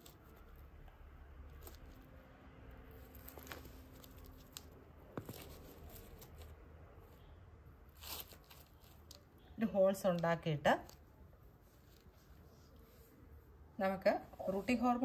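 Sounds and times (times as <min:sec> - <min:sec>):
rustling: 0:02.9 - 0:07.2, 0:07.9 - 0:09.3.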